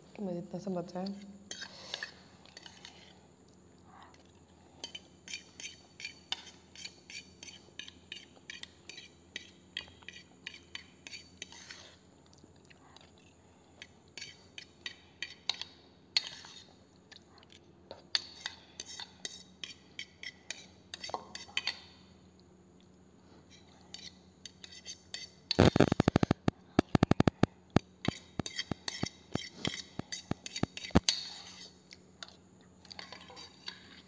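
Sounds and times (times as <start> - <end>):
metal spoon scraping a bowl: 1.1 - 3.2, 4.8 - 12.0, 15.4 - 16.7, 23.9 - 26.5, 28.0 - 34.0.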